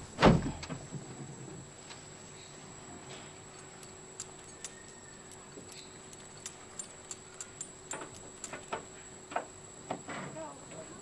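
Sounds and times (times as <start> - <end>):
metallic clicks of cage bars: 3.5 - 8.9.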